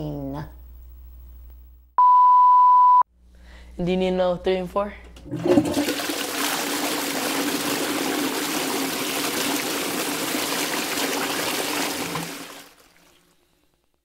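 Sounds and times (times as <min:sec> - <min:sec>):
toilet flushing: 0:05.2 - 0:13.4.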